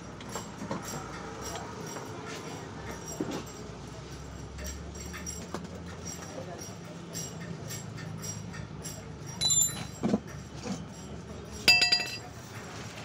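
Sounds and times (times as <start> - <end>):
metal tools clinking: 8.0 - 10.8, 11.5 - 12.4.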